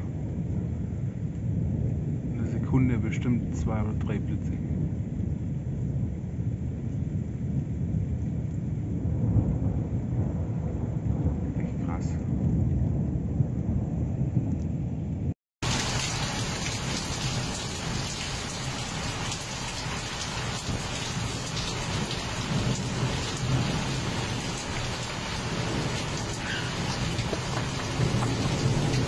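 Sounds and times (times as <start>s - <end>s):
thunder rumbling: 0.0s - 29.0s
heavy rain hissing: 15.6s - 29.0s.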